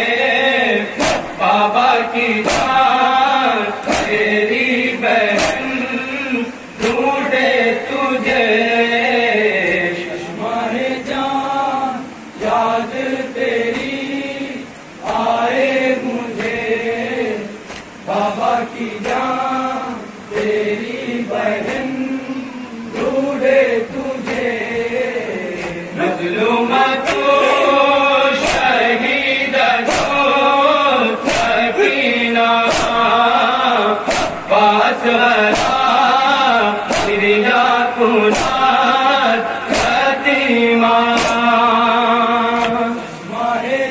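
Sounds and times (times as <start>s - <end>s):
men reciting a lament in unison: 0.0s - 43.9s
chest-beating slaps: 1.0s - 1.4s, 2.4s - 2.8s, 3.8s - 4.3s, 5.3s - 5.8s, 29.8s - 30.2s, 31.2s - 31.7s, 32.6s - 33.0s, 34.0s - 34.5s, 35.5s - 35.9s, 36.9s - 37.2s, 38.3s - 38.7s, 39.7s - 40.1s, 41.1s - 41.5s.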